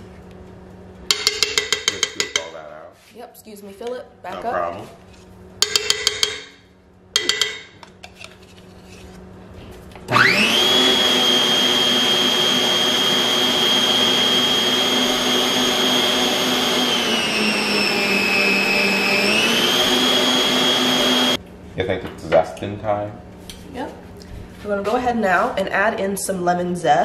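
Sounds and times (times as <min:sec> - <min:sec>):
metal cup clinking on bowl: 0:01.1 - 0:02.5, 0:07.2 - 0:07.8
stand mixer motor whine: 0:10.0 - 0:21.4.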